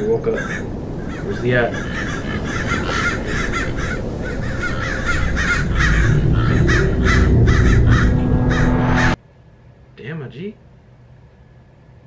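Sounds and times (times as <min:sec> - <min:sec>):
crows cawing: 0:00.0 - 0:09.2
deep low drone: 0:04.0 - 0:09.2.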